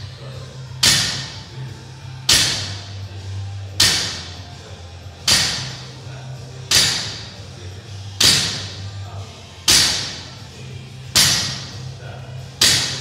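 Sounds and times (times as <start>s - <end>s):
gym equipment heavy impacts: 0.8s - 1.4s, 2.3s - 2.8s, 3.8s - 4.4s, 5.2s - 5.8s, 6.7s - 7.3s, 8.2s - 8.8s, 9.7s - 10.3s, 11.1s - 11.8s, 12.6s - 13.0s.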